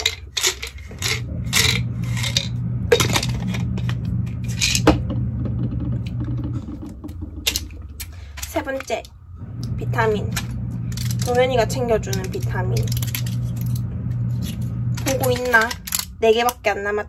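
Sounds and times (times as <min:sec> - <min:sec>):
tablets rattling in plastic bottle: 0:00.0 - 0:05.0, 0:10.4 - 0:11.4, 0:12.0 - 0:13.8, 0:14.4 - 0:16.2
low steady hum: 0:00.0 - 0:17.0.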